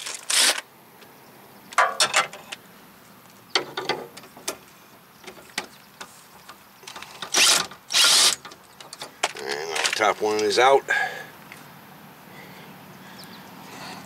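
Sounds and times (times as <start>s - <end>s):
impact tool bursts: 7.2s - 8.5s.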